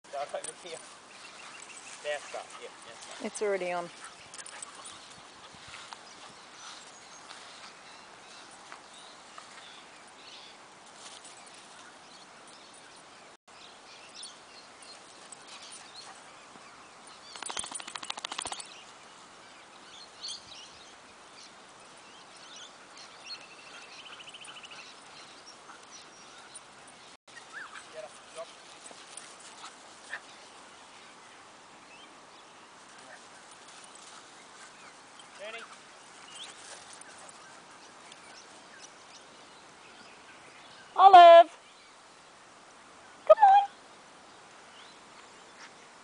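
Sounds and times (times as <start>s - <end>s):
bird calls: 14.0s - 32.1s.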